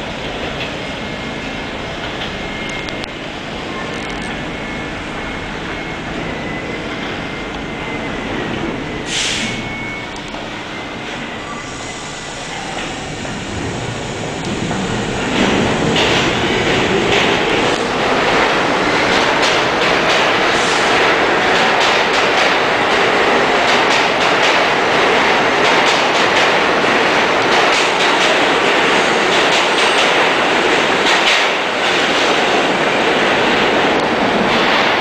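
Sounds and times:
subway train passing: 0.0s - 35.0s
steel wheels clattering on rails: 12.4s - 35.0s.

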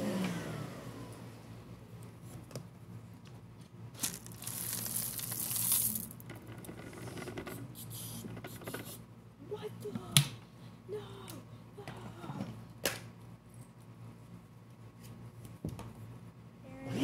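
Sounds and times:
dry noodles pouring onto carpet: 3.9s - 6.2s.

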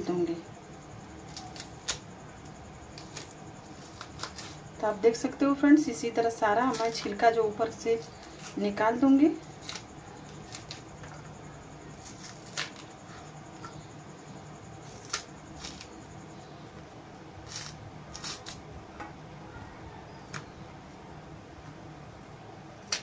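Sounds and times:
steady low hum: 0.0s - 23.0s
knife clicking and scraping peel: 1.3s - 4.6s, 9.5s - 10.9s, 12.0s - 13.3s, 14.8s - 16.0s, 17.4s - 18.6s.

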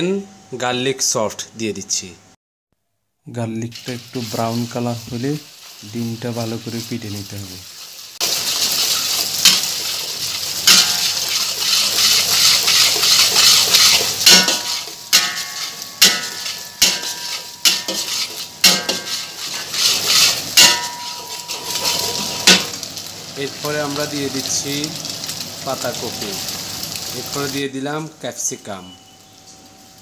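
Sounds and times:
eggs sizzling in oil: 3.5s - 30.0s
spatula scraping a wok: 5.4s - 6.0s, 7.7s - 22.8s
spatula clanking against wok: 10.6s - 22.7s.

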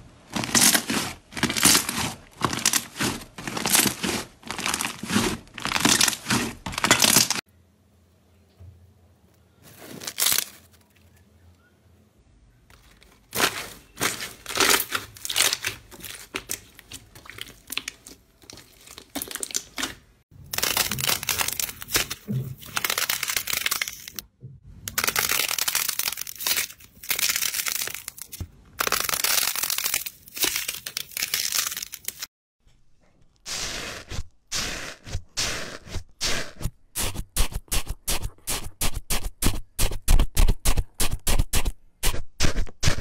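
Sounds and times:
slime crackling and popping: 24.9s - 32.3s.

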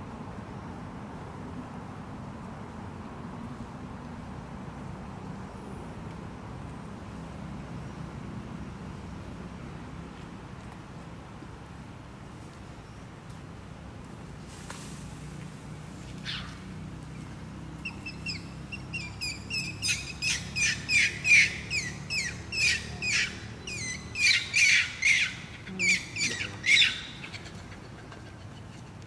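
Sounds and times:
high chirping calls: 17.8s - 28.9s.

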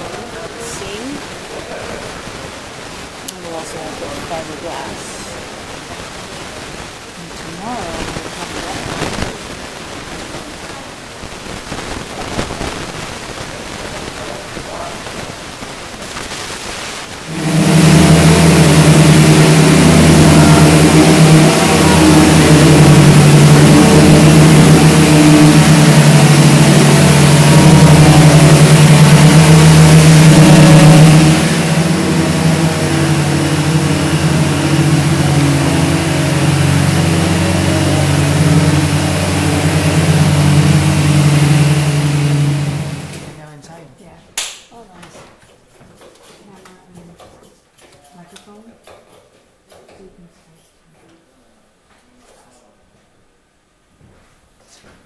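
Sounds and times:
electric sander motor whirring: 17.3s - 43.4s.

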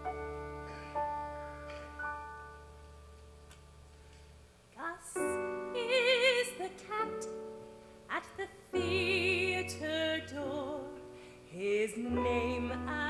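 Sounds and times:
instrumental accompaniment: 0.0s - 4.3s
woman singing with vibrato: 4.8s - 7.5s, 8.1s - 13.0s.

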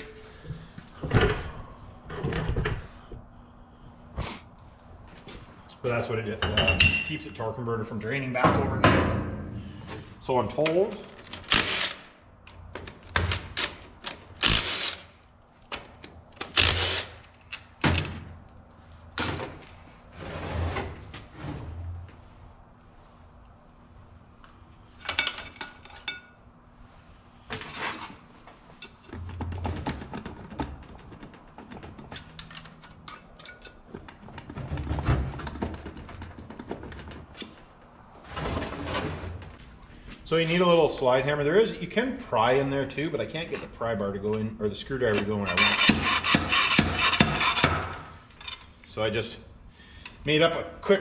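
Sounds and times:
impact wrench bursts: 11.4s - 12.1s, 14.4s - 15.1s, 16.4s - 17.2s, 45.6s - 48.0s.

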